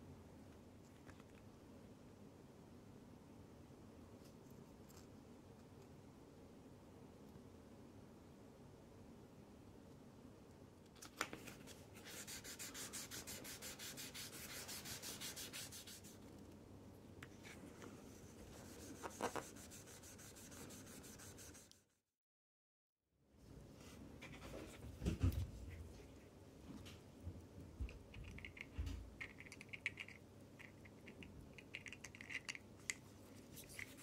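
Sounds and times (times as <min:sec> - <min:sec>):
sandpaper rubbing strokes: 0:12.0 - 0:16.2, 0:18.2 - 0:21.8.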